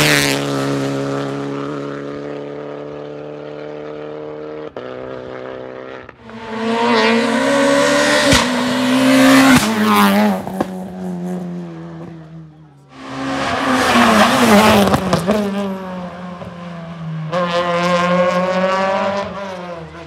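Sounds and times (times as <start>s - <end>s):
rally car engines revving: 0.0s - 20.0s
hissing tyre noise: 12.9s - 16.5s.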